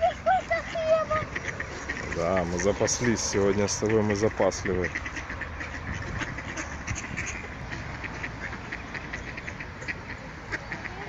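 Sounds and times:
ducks quacking: 0.0 - 11.0.

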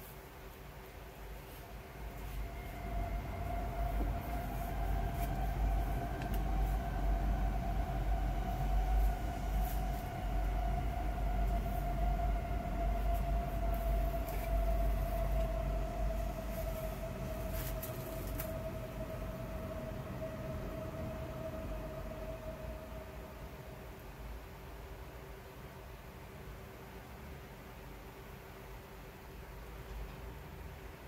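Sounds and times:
low humming rumble: 0.9 - 24.6
bubble wrap rustling: 16.2 - 18.8.

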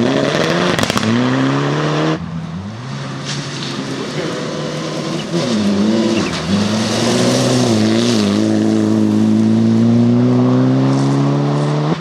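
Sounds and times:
rally car engine revving: 0.0 - 12.0.

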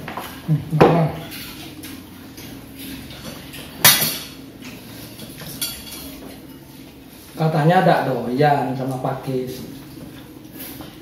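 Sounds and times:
spoons clinking on ceramic plates: 3.1 - 4.4, 5.2 - 6.6.

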